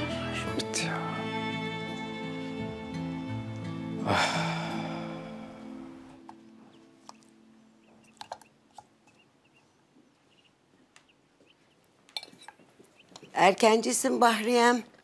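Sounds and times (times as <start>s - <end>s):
background music: 0.0s - 8.5s
cutlery clinking on plate: 12.1s - 12.6s.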